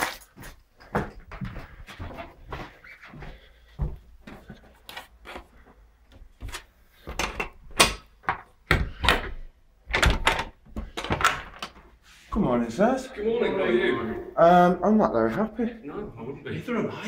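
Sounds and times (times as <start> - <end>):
lock and handle clacking: 7.2 - 8.1.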